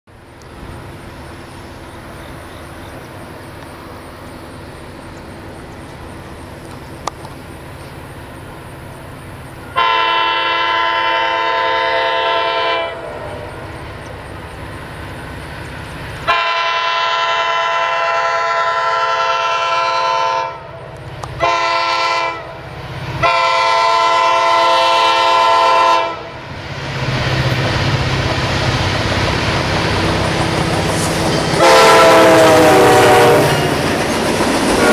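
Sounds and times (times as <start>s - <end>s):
locomotive engine and wheels: 0.1s - 34.9s
locomotive air horn blasts: 9.7s - 13.6s, 16.3s - 20.7s, 21.4s - 26.4s, 31.4s - 33.6s.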